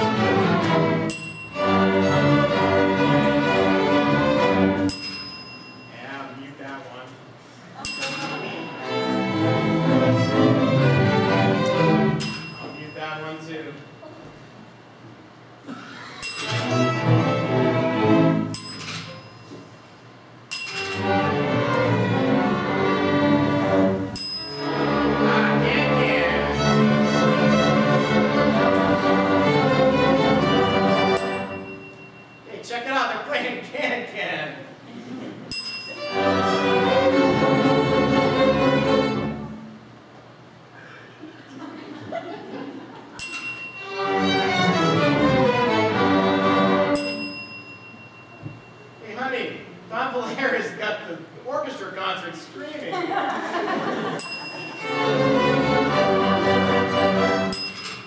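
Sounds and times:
string orchestra with piano: 0.0s - 4.9s, 8.4s - 12.4s, 16.4s - 18.6s, 20.9s - 31.7s, 36.0s - 39.6s, 43.8s - 47.3s, 54.6s - 57.6s
sharp ringing high strike: 1.0s - 2.1s, 4.9s - 6.3s, 7.8s - 9.4s, 12.2s - 14.1s, 16.2s - 17.0s, 18.4s - 19.8s, 20.5s - 21.2s, 24.1s - 26.2s, 30.9s - 32.6s, 35.5s - 36.7s, 43.2s - 44.8s, 46.9s - 49.1s, 57.5s - 58.0s
sharp click with high ring: 18.6s - 19.6s, 20.5s - 21.0s, 43.2s - 43.8s, 57.6s - 58.0s.

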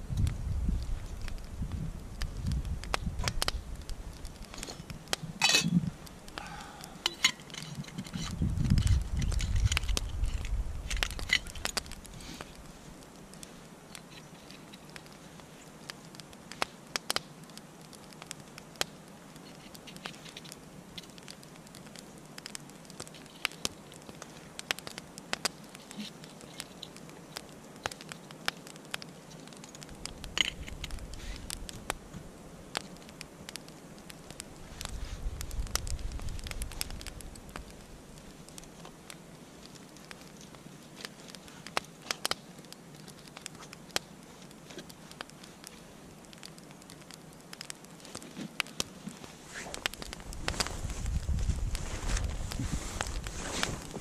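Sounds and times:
wood fire crackling: 0.0s - 54.0s
handling noise: 4.4s - 12.4s.

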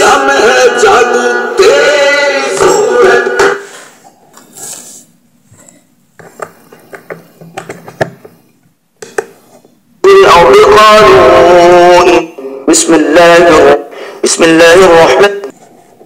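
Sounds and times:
man singing over music: 0.0s - 3.6s, 10.0s - 15.5s
clicks and taps of handling: 6.2s - 8.4s.

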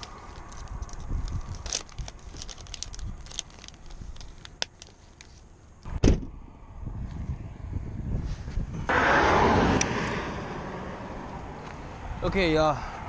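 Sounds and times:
plastic bags crinkling: 0.0s - 5.4s
loud thump: 5.9s - 6.4s.

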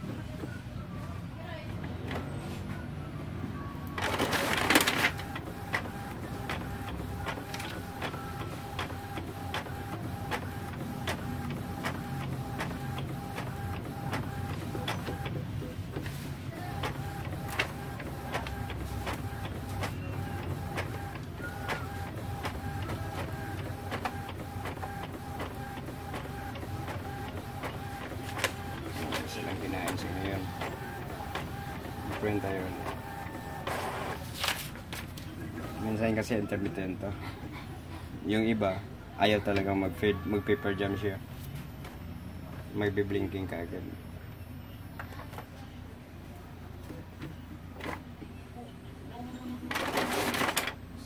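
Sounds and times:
printer carriage motor whining: 1.6s - 34.3s.

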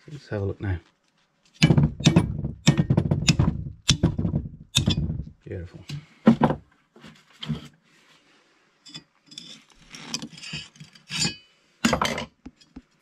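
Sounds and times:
metal clinks knocks and scrapes: 8.9s - 12.8s.

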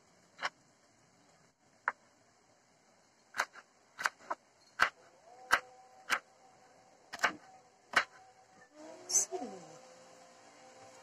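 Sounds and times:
knife chopping on wooden board: 3.4s - 6.2s, 7.1s - 8.2s.

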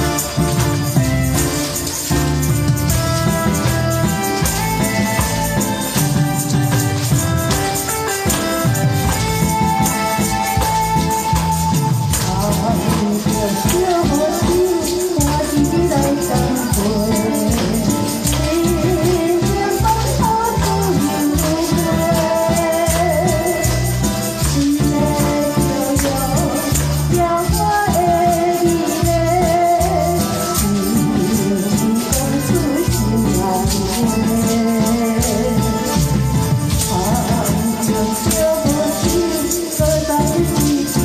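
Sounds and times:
backing track with steady beat: 0.0s - 41.0s
tambourine jingling: 0.0s - 41.0s
woman singing into a microphone: 9.7s - 41.0s.

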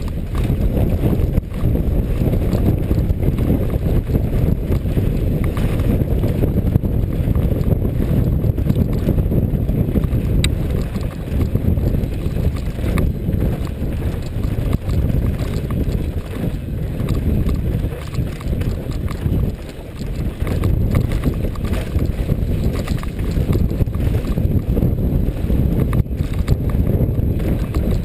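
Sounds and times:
bike rattling over bumps: 0.0s - 28.0s
wind rush over microphone: 0.0s - 28.0s.

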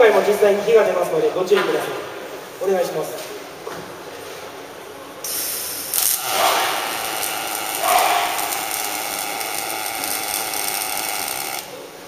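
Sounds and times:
welding arc hissing: 5.3s - 11.8s.

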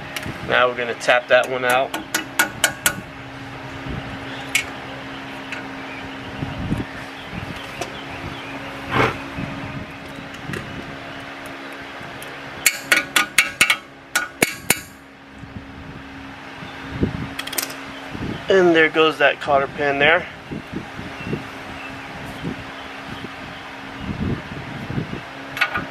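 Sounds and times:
steady low hum: 0.0s - 25.9s
metal-on-metal taps: 12.6s - 15.0s.

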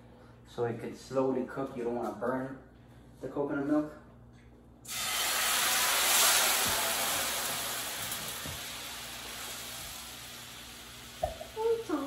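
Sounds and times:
liquid sizzling in hot pan: 4.9s - 12.0s
utensil knocking on pan: 11.2s - 11.5s.

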